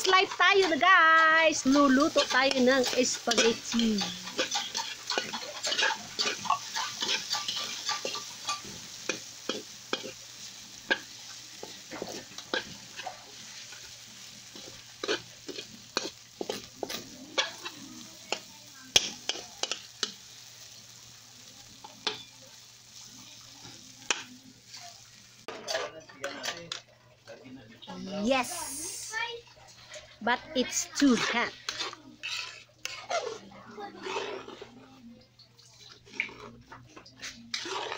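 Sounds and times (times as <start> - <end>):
metal fork scraping a pan: 0.0 - 20.8, 21.9 - 22.4, 25.5 - 26.8, 29.7 - 34.8, 35.6 - 37.9
food sizzling: 0.0 - 37.9.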